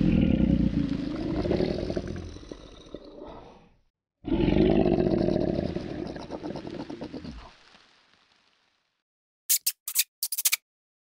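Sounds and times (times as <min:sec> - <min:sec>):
crocodile growling: 0:00.0 - 0:07.5.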